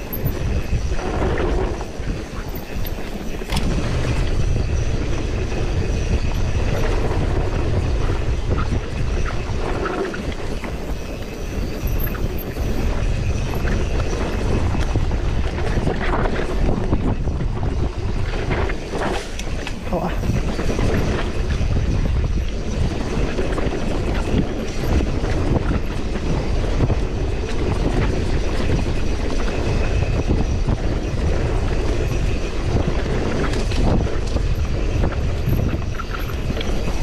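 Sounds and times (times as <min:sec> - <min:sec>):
steady low rumble: 0:00.0 - 0:24.4
wind buffeting microphone: 0:00.0 - 0:37.0.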